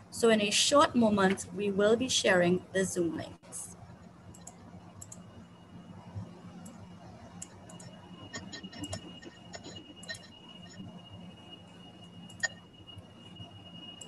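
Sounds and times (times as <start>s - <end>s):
faint steady hum: 0.0s - 14.0s
keyboard typing clicks: 4.3s - 5.3s, 7.4s - 10.8s.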